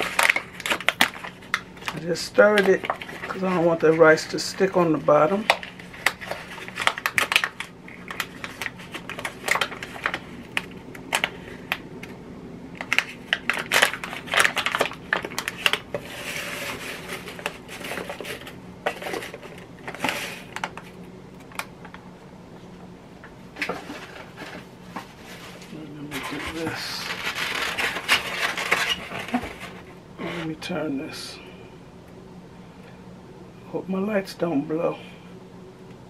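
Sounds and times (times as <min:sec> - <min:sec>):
packaging crinkling and rustling: 0:00.0 - 0:12.2, 0:12.8 - 0:22.0, 0:23.5 - 0:30.6.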